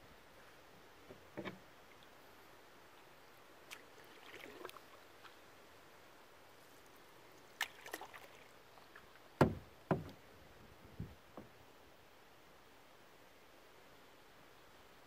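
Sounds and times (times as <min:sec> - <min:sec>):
paddle dips and drips: 0:03.0 - 0:05.4, 0:06.8 - 0:10.2
loud thumps: 0:09.4 - 0:10.2.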